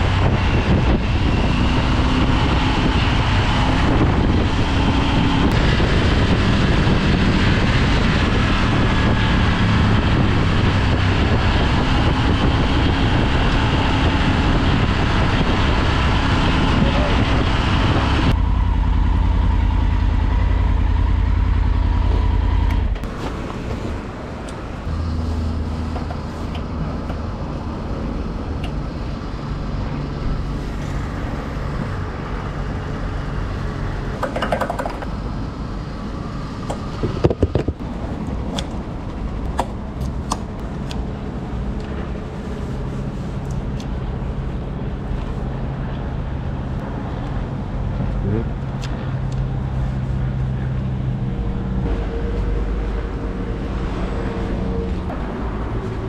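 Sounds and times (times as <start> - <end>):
wind noise: 0.0 - 56.0
motorcycle engine: 29.9 - 35.2.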